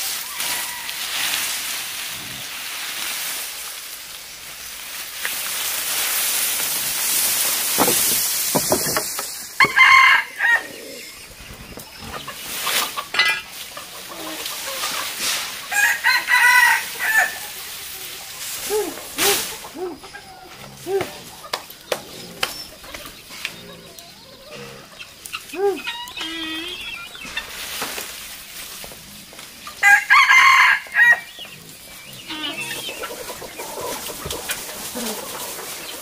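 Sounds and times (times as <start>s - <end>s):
steady hiss: 0.0s - 9.8s, 16.8s - 20.2s
rooster crowing: 9.6s - 11.0s, 15.7s - 17.4s, 29.8s - 31.3s.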